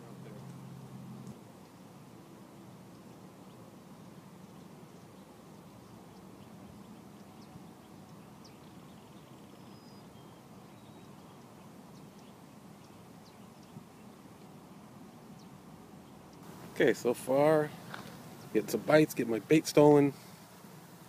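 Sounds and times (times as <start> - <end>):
faint high chirps and ticks: 2.8 - 3.6, 4.4 - 16.8.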